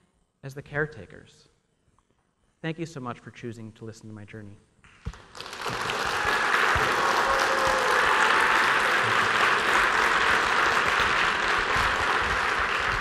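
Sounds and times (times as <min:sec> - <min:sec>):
audience applauding: 0:05.1 - 0:13.0.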